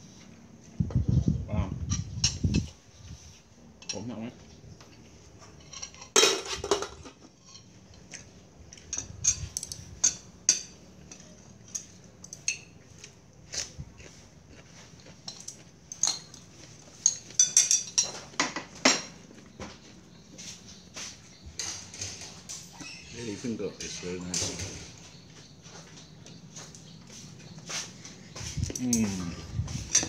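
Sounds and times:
cutlery clinking on ceramic dishes: 5.4s - 12.8s, 15.2s - 19.2s.

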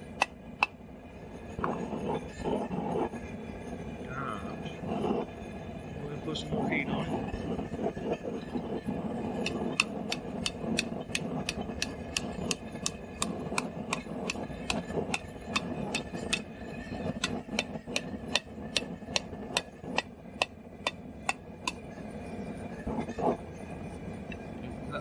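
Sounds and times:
hammer striking steel on anvil: 0.0s - 0.8s, 9.4s - 21.8s.

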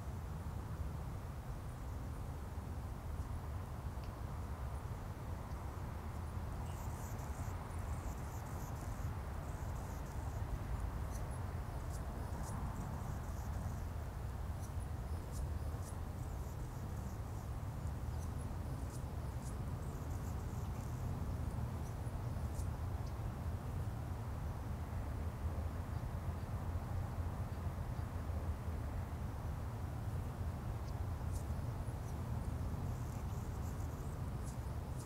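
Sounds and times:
faint high chirps and ticks: 3.1s - 24.6s, 28.9s - 35.0s.

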